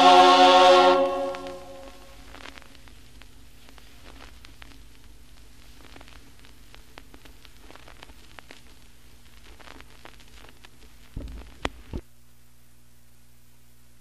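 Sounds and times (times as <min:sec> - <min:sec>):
low hum and hiss: 0:00.0 - 0:14.0
record crackles and clicks: 0:01.0 - 0:14.0
thumps: 0:11.1 - 0:12.0.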